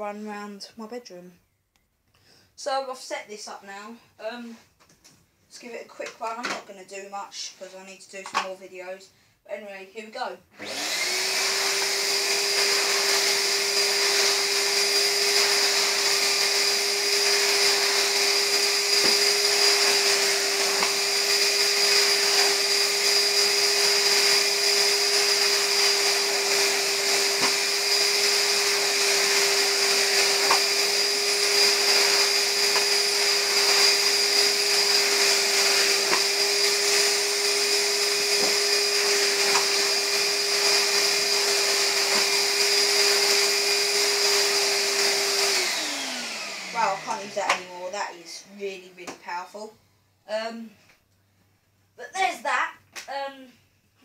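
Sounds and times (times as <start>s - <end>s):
motor winding down: 10.6s - 47.5s
vacuum cleaner motor whine: 10.6s - 48.9s.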